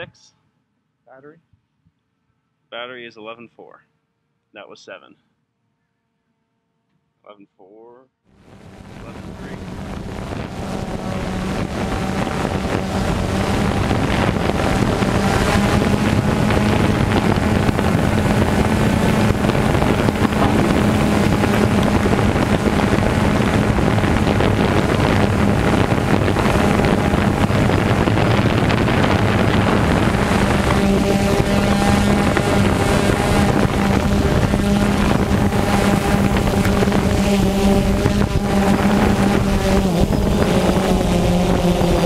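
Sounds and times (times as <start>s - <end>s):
drone propellers buzzing: 8.3s - 42.0s
wind on microphone: 8.4s - 42.0s.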